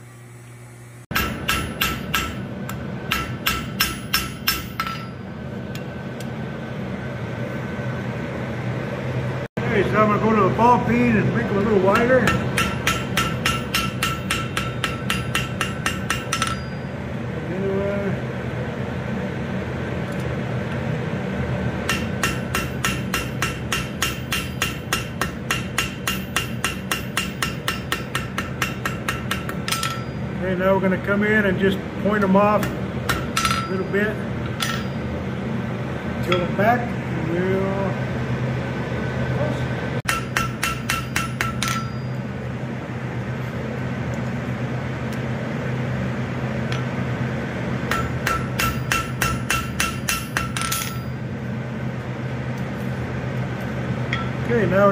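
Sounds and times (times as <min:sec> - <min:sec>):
steady low hum: 0:00.0 - 0:54.9
hammer striking steel on anvil: 0:01.1 - 0:05.9, 0:11.6 - 0:17.0, 0:21.8 - 0:30.4, 0:32.2 - 0:35.2, 0:36.2 - 0:36.6, 0:40.1 - 0:42.3, 0:47.9 - 0:51.2, 0:54.1 - 0:54.5.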